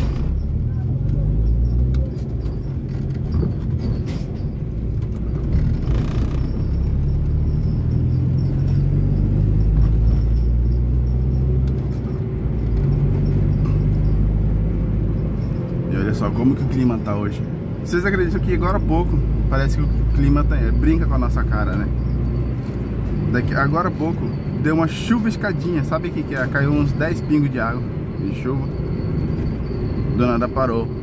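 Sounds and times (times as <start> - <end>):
car engine accelerating: 5.1 - 16.2.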